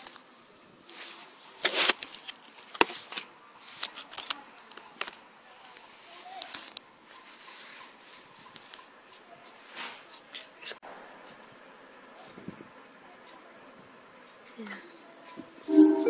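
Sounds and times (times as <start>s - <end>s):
rustling and scraping: 0.9s - 10.2s.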